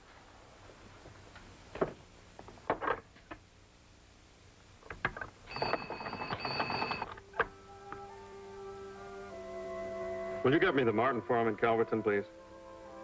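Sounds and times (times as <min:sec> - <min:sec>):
telephone bell ringing: 0:05.5 - 0:07.1
soft background music: 0:06.5 - 0:13.0.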